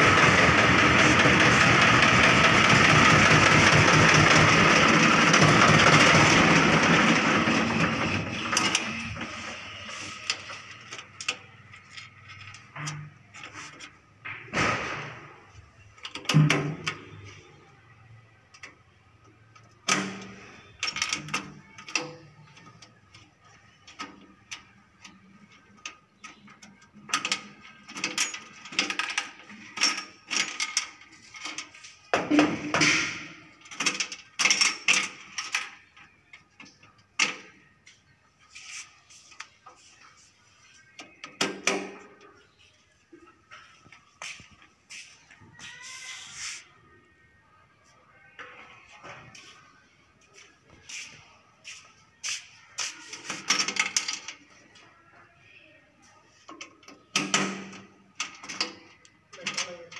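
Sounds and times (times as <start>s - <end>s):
tractor diesel engine running: 0.0s - 9.5s.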